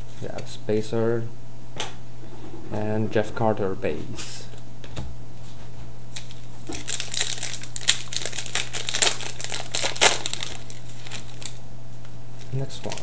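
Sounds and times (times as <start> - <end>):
card pack wrapper crinkling: 6.2 - 11.6.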